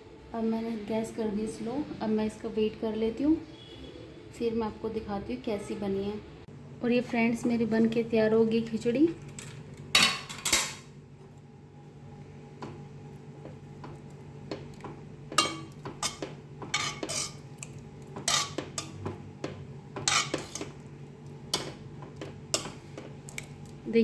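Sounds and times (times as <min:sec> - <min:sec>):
metal spoon scraping pot: 0:15.4 - 0:17.4, 0:18.2 - 0:19.0, 0:20.0 - 0:20.8.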